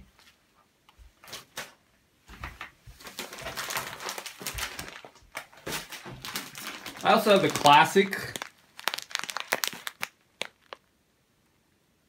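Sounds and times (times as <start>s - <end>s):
plastic bag crinkling: 3.0s - 10.9s.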